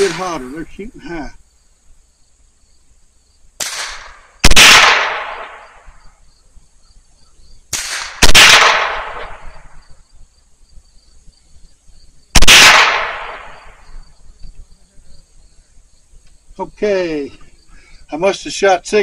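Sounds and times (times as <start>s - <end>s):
rifle shots ringing: 3.6s - 5.8s, 7.7s - 9.7s, 12.4s - 13.8s.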